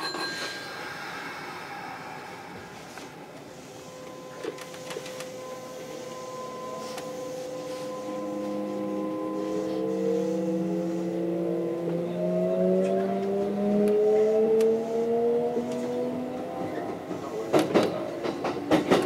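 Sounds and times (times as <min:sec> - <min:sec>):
electric train motors whining: 0:00.1 - 0:19.0.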